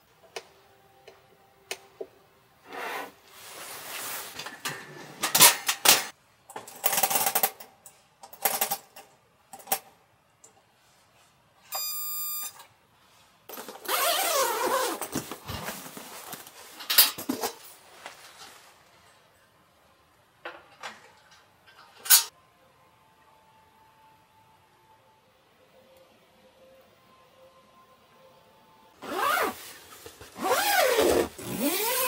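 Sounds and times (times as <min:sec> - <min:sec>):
bag unzipping: 0:13.9 - 0:15.1, 0:29.0 - 0:29.6, 0:30.4 - 0:32.0.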